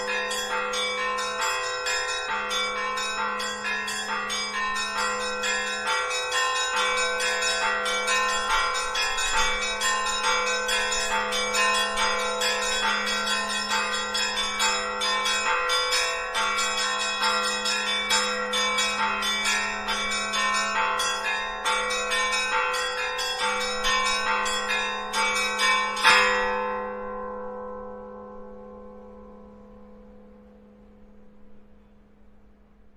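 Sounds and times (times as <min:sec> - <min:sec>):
church bells pealing: 0:00.0 - 0:32.8
low hum of deep bells: 0:00.0 - 0:32.9.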